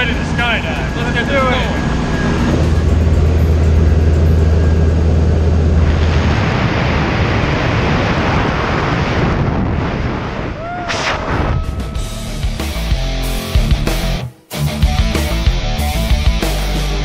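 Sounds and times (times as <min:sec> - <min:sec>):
low engine drone: 0:00.0 - 0:17.0
loud wind rushing: 0:00.1 - 0:13.3.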